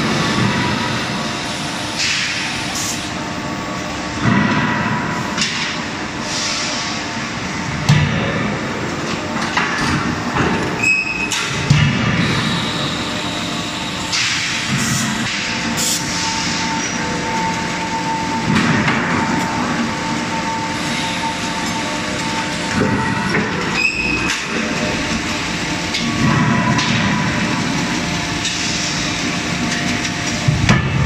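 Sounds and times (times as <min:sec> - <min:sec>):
machinery motors droning: 0:07.0 - 0:31.0
machine whine: 0:07.1 - 0:31.0.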